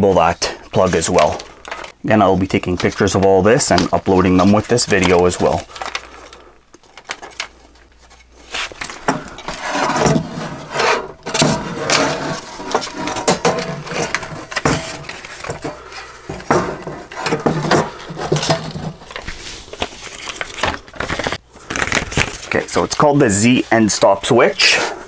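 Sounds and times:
sheet metal plate rubbing and scraping: 8.5s - 19.6s.

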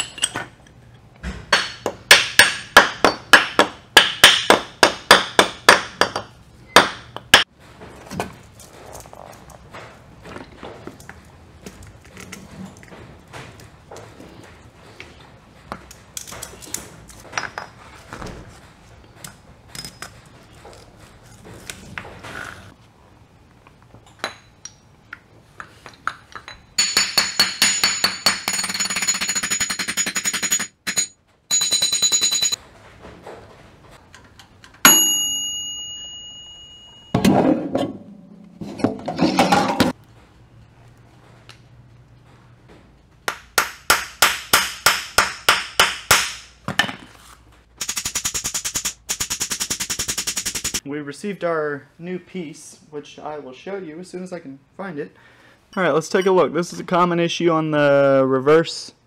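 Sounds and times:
metal parts clinking and tapping: 0.0s - 1.0s
sharp ringing metal clang: 34.9s - 37.4s.

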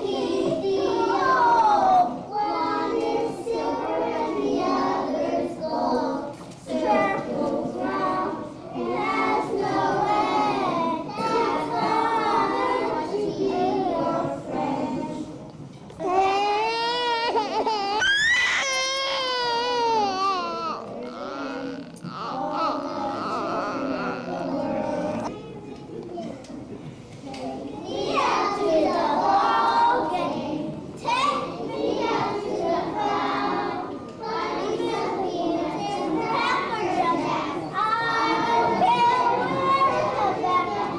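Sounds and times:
children singing in unison: 0.0s - 15.5s, 21.7s - 25.3s, 27.7s - 40.9s.

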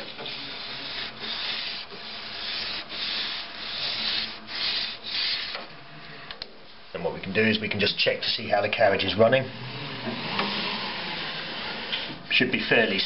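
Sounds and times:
pad rubbing along metal rail: 0.0s - 5.7s.

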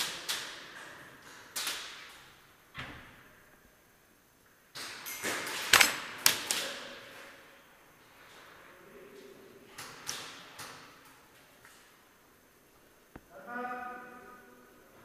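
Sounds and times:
airsoft gun shots echoing: 5.6s - 6.7s.

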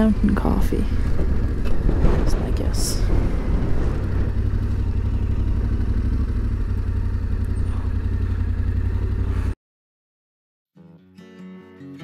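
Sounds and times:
motorcycle engine rumbling: 0.0s - 9.6s.

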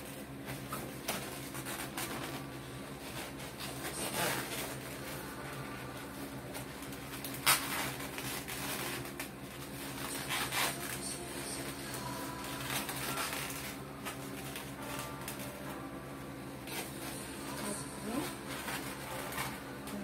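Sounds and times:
balloons rustling and rubbing: 0.0s - 20.0s
steady low hum: 0.0s - 20.0s
balloon squeaks: 7.2s - 15.5s.

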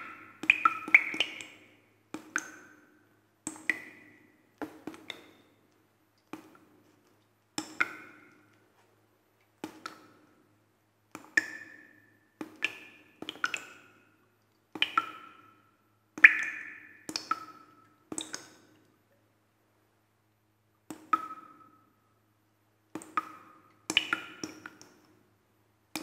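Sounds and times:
water drops plinking into water: 0.0s - 2.9s, 3.5s - 5.6s, 7.6s - 8.6s, 11.2s - 15.6s, 16.2s - 18.9s, 20.8s - 21.8s, 22.9s - 25.0s.

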